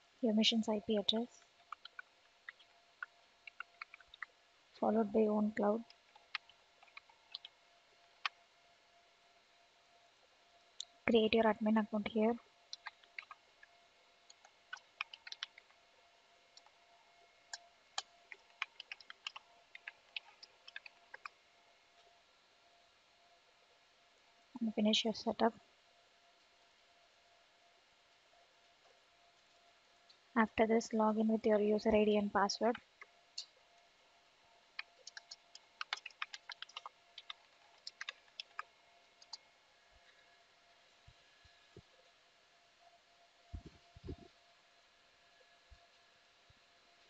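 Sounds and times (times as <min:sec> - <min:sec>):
keyboard keys clicking: 0:14.7 - 0:15.6, 0:18.4 - 0:21.3, 0:35.0 - 0:38.6.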